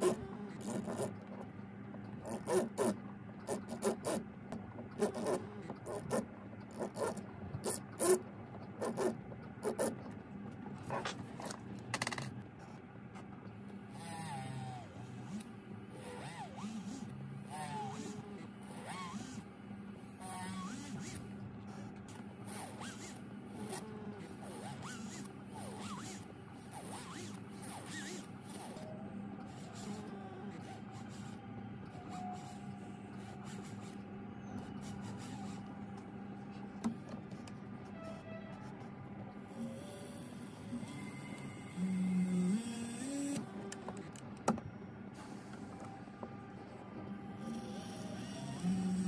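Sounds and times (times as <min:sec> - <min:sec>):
steady low hum: 0:00.0 - 0:49.0
micromotor handpiece whining: 0:14.0 - 0:19.4, 0:20.2 - 0:21.2, 0:22.5 - 0:28.8, 0:29.5 - 0:34.0, 0:39.4 - 0:44.2, 0:47.3 - 0:49.0.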